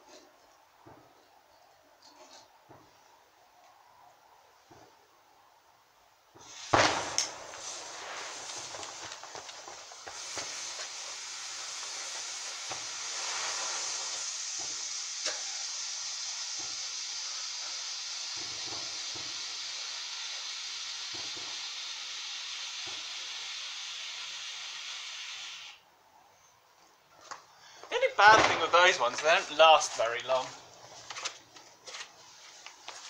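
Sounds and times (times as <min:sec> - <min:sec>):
firework fountain hissing: 0:06.3 - 0:25.9, 0:27.9 - 0:31.5
small crackles: 0:06.4 - 0:15.5.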